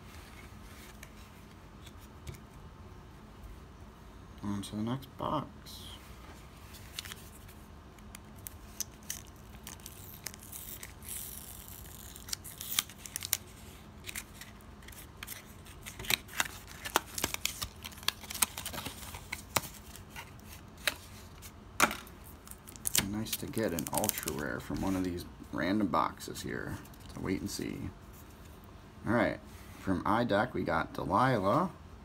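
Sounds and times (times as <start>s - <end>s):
tape seal tearing: 8.1s - 19.7s.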